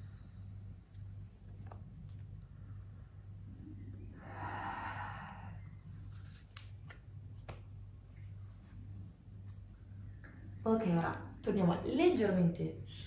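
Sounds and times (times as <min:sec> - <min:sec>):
steady low hum: 0:00.0 - 0:13.0
person breathing out slowly: 0:04.0 - 0:06.1.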